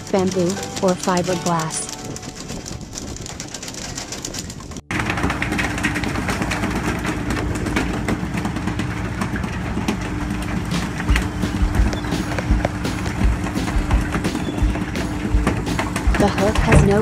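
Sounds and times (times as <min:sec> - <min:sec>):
wind: 0:00.0 - 0:17.0
knocks and clatter on deck: 0:02.2 - 0:17.0
low engine hum: 0:04.6 - 0:17.0.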